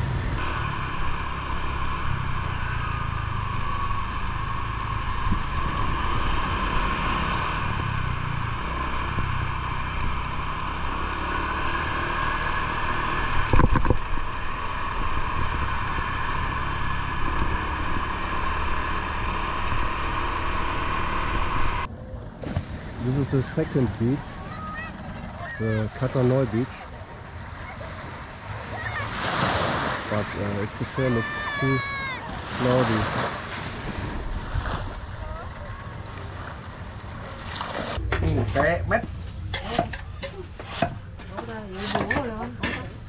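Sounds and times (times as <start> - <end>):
scooter engine hum: 0.0 - 29.1, 30.1 - 43.0
wind rush on microphone: 13.4 - 16.1.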